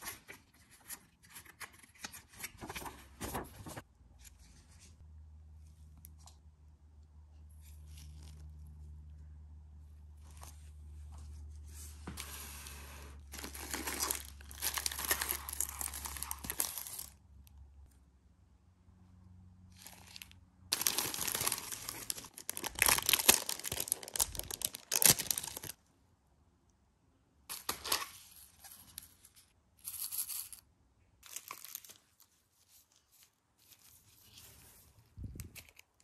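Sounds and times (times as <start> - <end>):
plastic crinkling and rustling: 13.3 - 17.2, 19.8 - 25.8.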